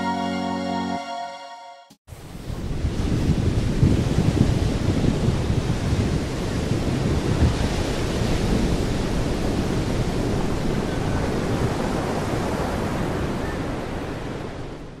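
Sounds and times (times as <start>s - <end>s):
small waves on sandy beach: 2.1s - 15.0s
wind on microphone: 2.1s - 15.0s.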